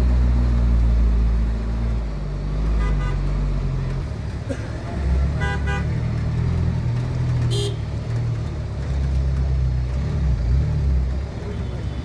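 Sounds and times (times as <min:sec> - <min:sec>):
traffic engine rumble: 0:00.0 - 0:12.0
vehicle horns honking: 0:02.8 - 0:03.2, 0:05.4 - 0:05.9, 0:07.5 - 0:07.8.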